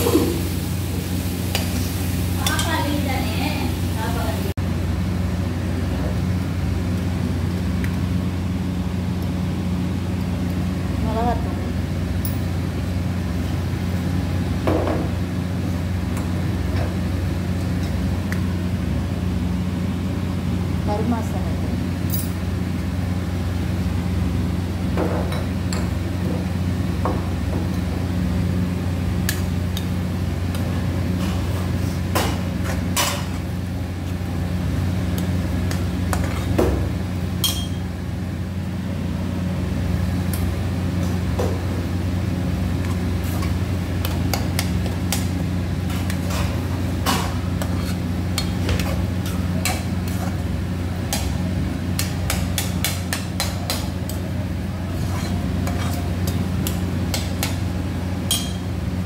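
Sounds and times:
steady low hum: 0.0s - 59.0s
metal spatula scraping a pan: 45.9s - 50.4s, 54.9s - 56.1s.

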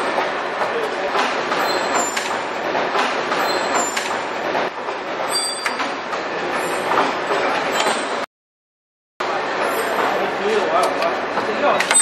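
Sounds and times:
machinery clatter: 0.0s - 8.2s.

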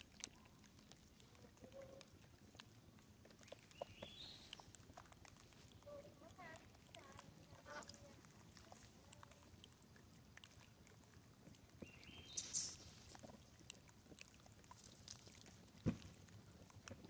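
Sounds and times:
faint ticks: 0.0s - 17.0s
soft hiss: 11.8s - 13.5s.

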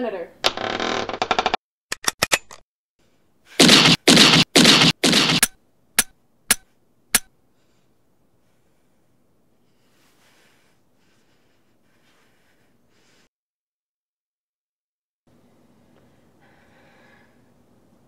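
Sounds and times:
loud gunshots: 3.6s - 5.5s
rapid gunfire rattle: 3.6s - 5.6s.

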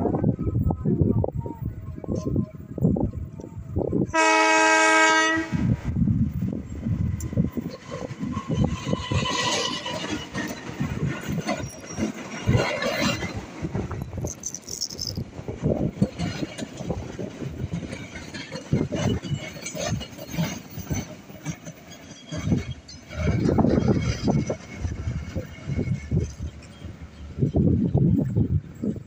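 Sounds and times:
steady train rumble: 0.0s - 29.0s
train wheels clattering on rails: 6.5s - 29.0s.

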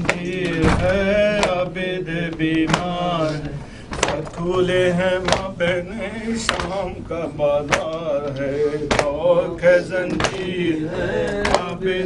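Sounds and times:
men chanting a lament: 0.0s - 12.0s.

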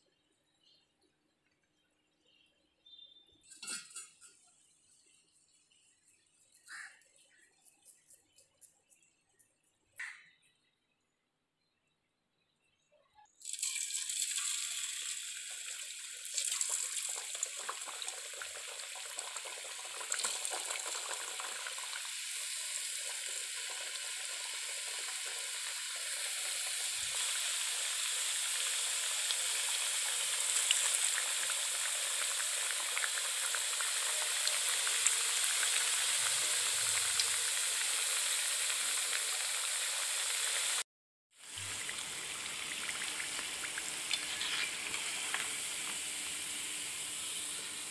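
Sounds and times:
deep-frying sizzle with crackles: 13.3s - 47.9s.

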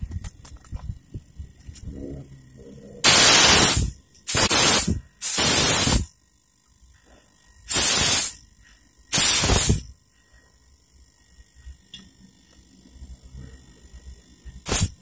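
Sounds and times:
compressed air hissing: 3.0s - 6.1s, 7.7s - 8.4s, 9.1s - 9.9s, 14.6s - 15.0s.

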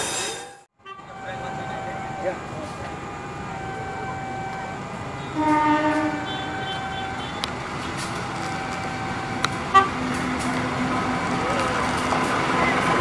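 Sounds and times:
locomotive horn blast: 0.8s - 2.4s, 3.8s - 8.0s, 8.9s - 10.0s.

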